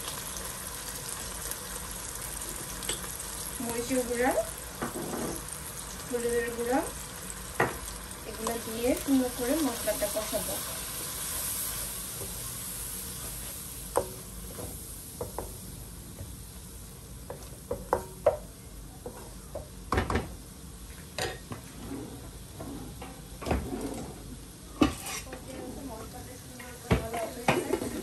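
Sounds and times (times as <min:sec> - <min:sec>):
paste sizzling in a pan: 0:00.0 - 0:18.4
wooden spatula scraping: 0:23.6 - 0:26.0.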